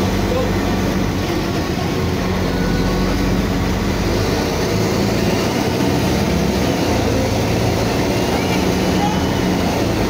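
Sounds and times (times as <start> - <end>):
bus diesel engine running: 0.0 - 10.0.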